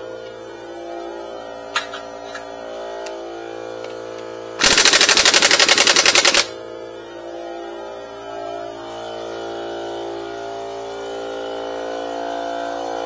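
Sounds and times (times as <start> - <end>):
pneumatic impact wrench hammering: 4.6 - 6.6.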